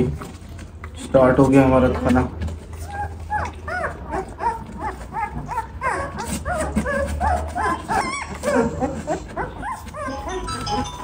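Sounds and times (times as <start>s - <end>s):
puppies whimpering: 2.6s - 11.0s.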